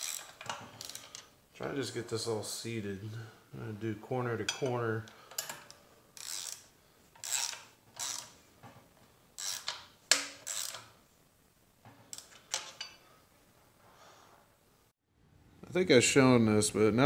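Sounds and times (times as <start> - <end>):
hand ratchet clicking: 0.0 - 1.2, 5.3 - 8.4, 9.4 - 10.9.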